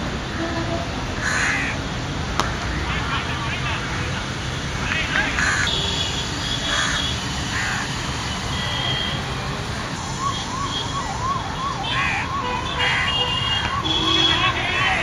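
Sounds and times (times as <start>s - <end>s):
outdoor background noise: 0.0s - 15.0s
siren sweeping up and down: 6.5s - 15.0s.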